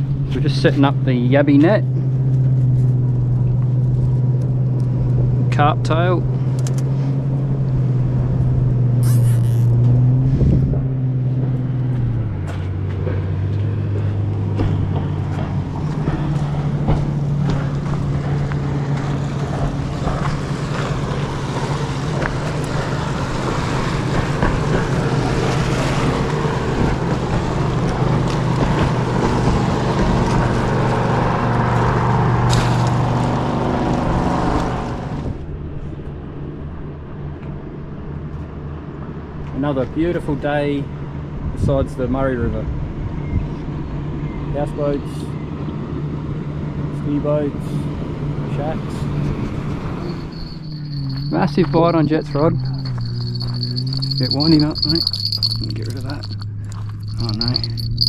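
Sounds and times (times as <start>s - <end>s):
motorboat engine running: 0.0s - 35.3s, 49.1s - 58.0s.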